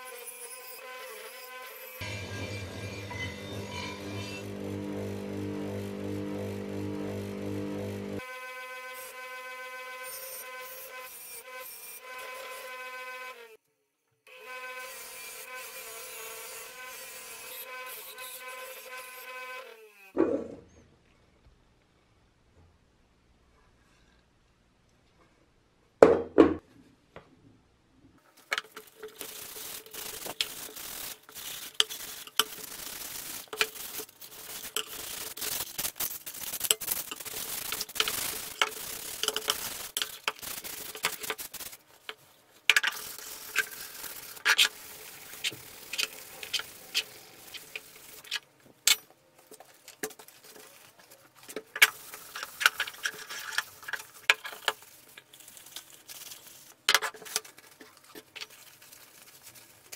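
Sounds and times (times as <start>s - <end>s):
sandpaper rasping on metal: 28.6s - 41.8s, 42.8s - 48.4s, 51.7s - 59.9s.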